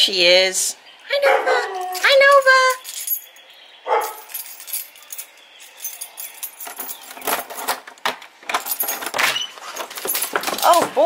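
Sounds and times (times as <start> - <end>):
keys jingling in door lock: 1.3 - 11.0
small metallic rattles: 4.0 - 11.0.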